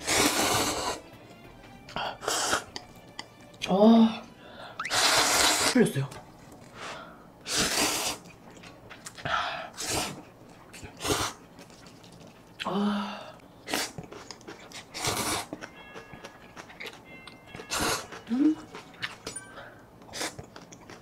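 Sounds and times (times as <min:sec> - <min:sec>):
wet noodle slurps: 0:00.0 - 0:01.0, 0:04.8 - 0:05.8, 0:07.5 - 0:08.4, 0:09.8 - 0:12.2, 0:13.6 - 0:15.5.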